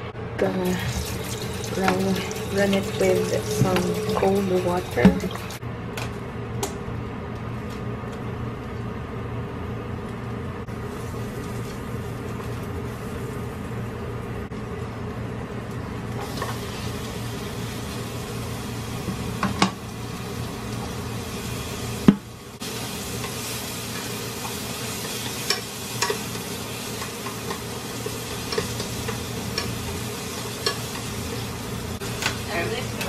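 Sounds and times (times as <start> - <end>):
onion sizzling in a frying pan: 0.6 - 5.6, 10.7 - 14.2, 15.5 - 33.0.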